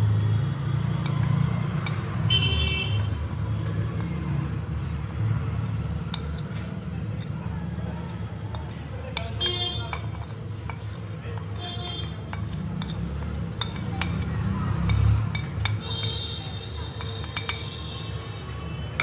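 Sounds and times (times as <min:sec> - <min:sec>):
spoon scraping porcelain plate: 0:06.1 - 0:14.4
spoon clinking on glass: 0:16.9 - 0:17.8.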